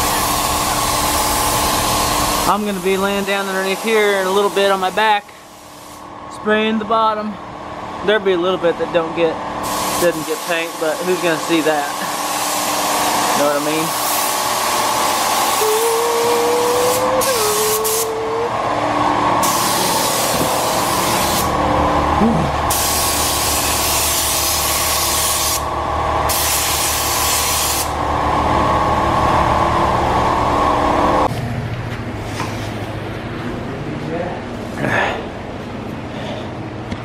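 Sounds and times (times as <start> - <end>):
paint spray gun hissing: 0.0 - 6.0, 9.6 - 12.9, 13.5 - 18.2, 19.4 - 21.5, 22.7 - 25.7, 26.3 - 27.9
steady machine hum: 0.0 - 37.0.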